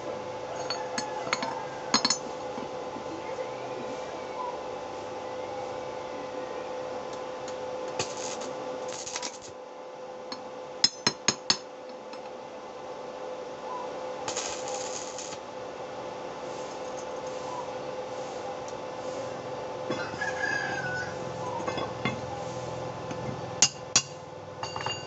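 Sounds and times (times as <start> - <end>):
steady hum: 0.0 - 25.0
welding hissing crackle: 7.9 - 9.6, 14.2 - 15.5, 16.4 - 19.5.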